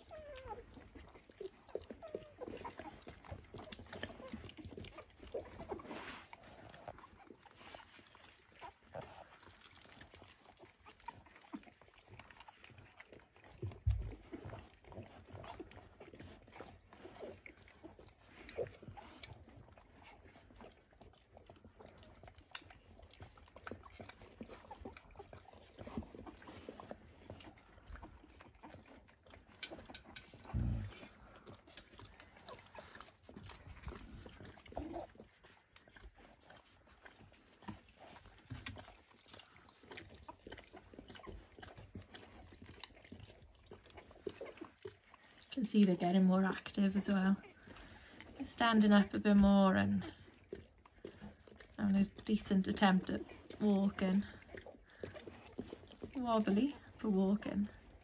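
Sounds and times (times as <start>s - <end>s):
puppies grunting and squeaking: 0.0s - 58.0s.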